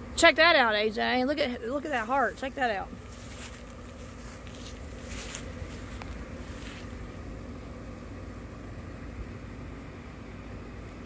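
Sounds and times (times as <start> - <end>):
blower fan humming: 0.0 - 11.0
soft rustles: 2.0 - 7.2.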